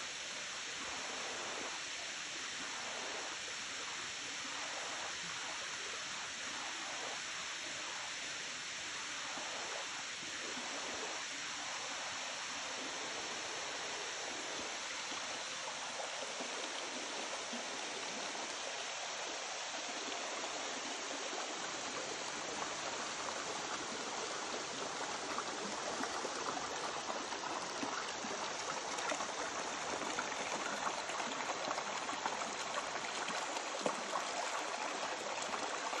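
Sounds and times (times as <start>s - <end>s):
water rushing over rocks: 12.1s - 36.0s
small water splashes: 21.8s - 36.0s.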